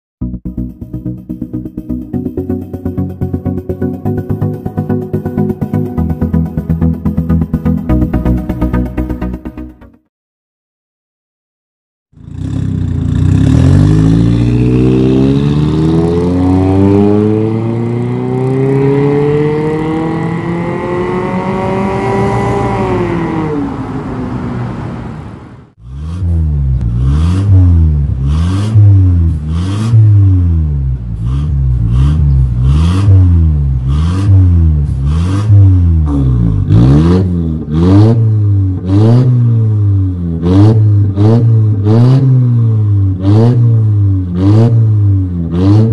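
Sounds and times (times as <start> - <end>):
car engine revving: 12.2 - 45.9.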